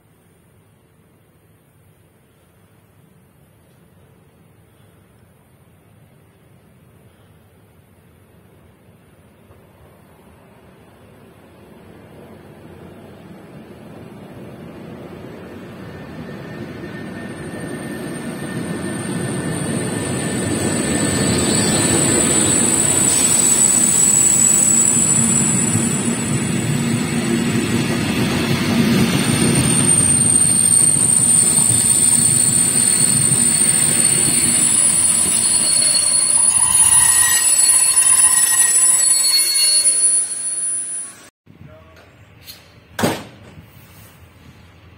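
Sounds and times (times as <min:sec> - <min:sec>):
train wheels rumbling on rails: 0:09.4 - 0:39.0
thin high whine: 0:12.9 - 0:41.3.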